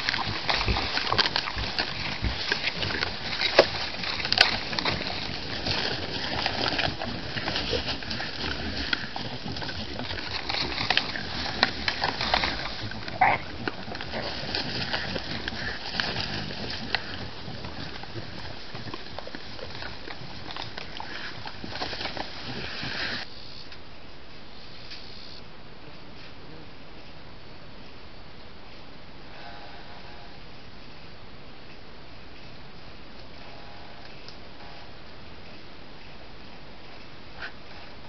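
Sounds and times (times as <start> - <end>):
animals crunching and chewing: 0.0 - 23.3
rustling in dry leaves: 0.0 - 23.6.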